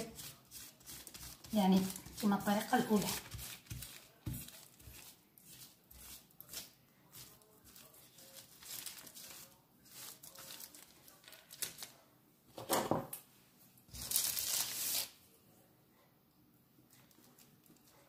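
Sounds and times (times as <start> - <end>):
plastic sheet crinkling: 0.0 - 5.2, 7.7 - 12.0, 13.9 - 15.2.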